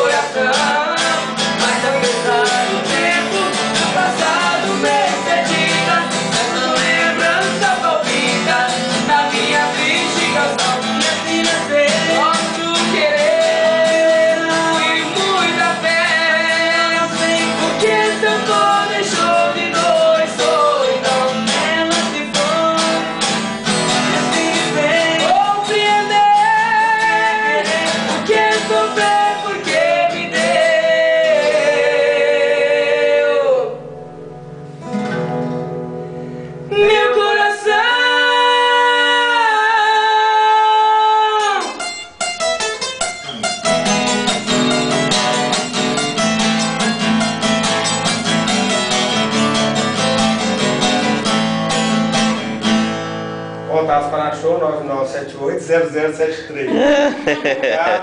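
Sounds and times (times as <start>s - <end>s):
men singing together: 0.0s - 23.2s, 23.9s - 33.9s, 36.7s - 41.7s
strummed acoustic guitars: 0.0s - 58.0s.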